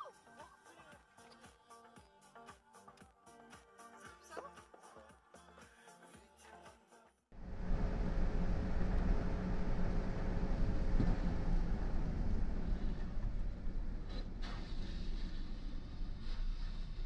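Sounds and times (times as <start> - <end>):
vehicle interior road noise: 7.4 - 17.0.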